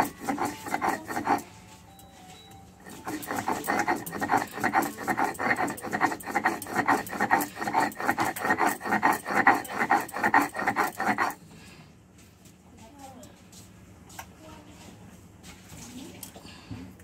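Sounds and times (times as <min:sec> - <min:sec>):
stone scraping on stone: 0:00.0 - 0:01.5, 0:02.8 - 0:11.4.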